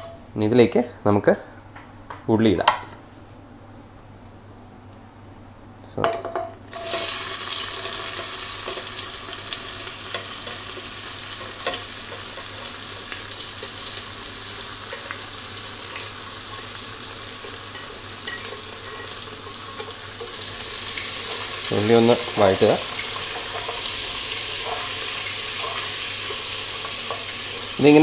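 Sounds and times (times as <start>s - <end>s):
onions sizzling in oil: 6.7s - 28.0s.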